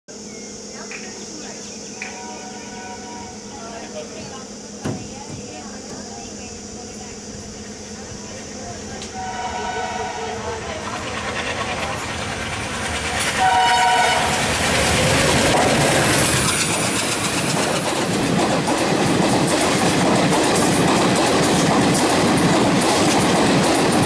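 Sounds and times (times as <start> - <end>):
train passing with wheel clatter: 0.8 - 24.0
locomotive horn: 2.0 - 3.4, 9.1 - 10.6, 13.4 - 15.4.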